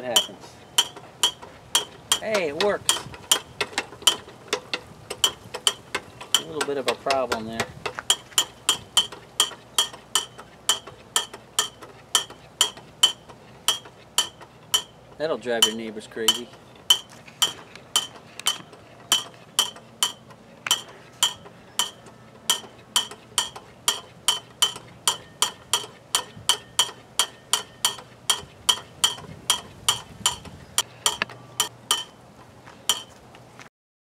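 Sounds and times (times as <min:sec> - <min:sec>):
whirligig clapper clanging: 0:00.0 - 0:33.2.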